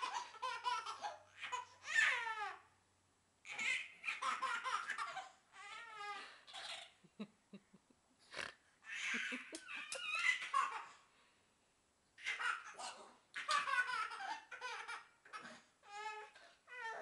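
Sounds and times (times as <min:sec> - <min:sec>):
baby laughing: 0:00.0 - 0:02.6, 0:03.5 - 0:07.0, 0:08.9 - 0:11.0, 0:12.2 - 0:17.0
baby squealing: 0:08.9 - 0:10.8.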